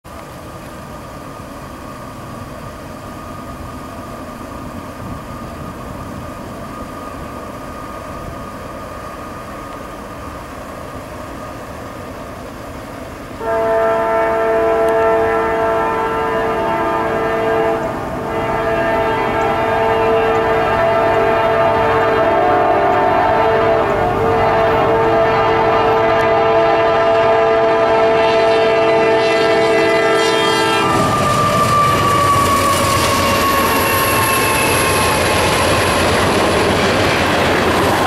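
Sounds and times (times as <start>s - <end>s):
diesel locomotive rumbling: 0.1s - 38.0s
locomotive air horn blast: 13.4s - 31.9s.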